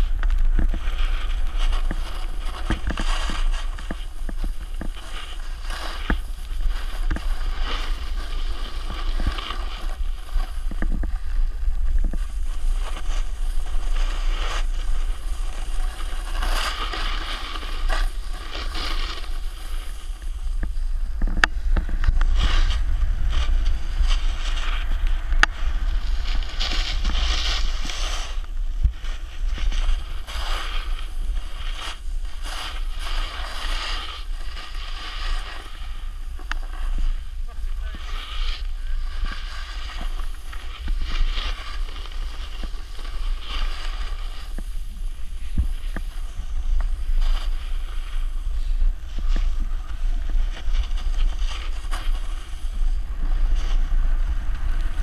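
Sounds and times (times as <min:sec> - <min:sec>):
wind buffeting microphone: 0:00.0 - 0:33.2
ski edges scraping over snow: 0:00.0 - 0:55.0.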